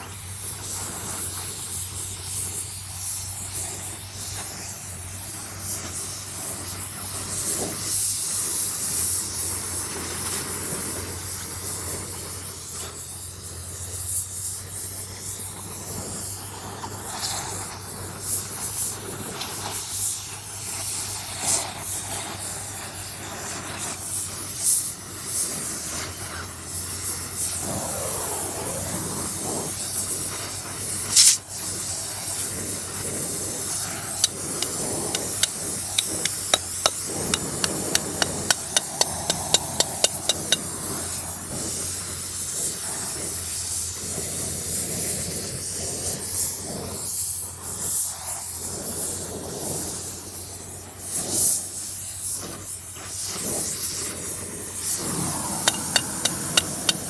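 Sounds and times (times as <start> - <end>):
gas torch flame hissing: 0.0 - 57.0
light metal hammer taps: 34.2 - 40.6, 55.7 - 57.0.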